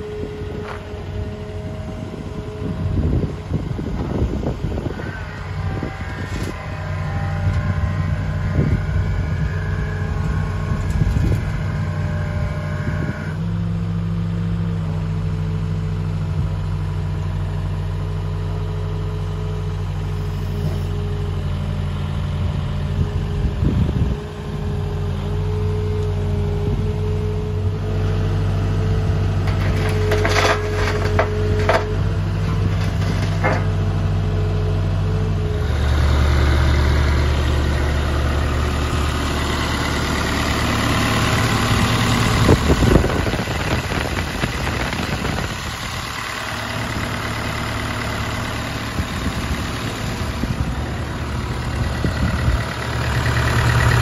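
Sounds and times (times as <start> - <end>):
hydraulic whine: 0.0 - 13.7
excavator diesel engine running: 0.0 - 54.0.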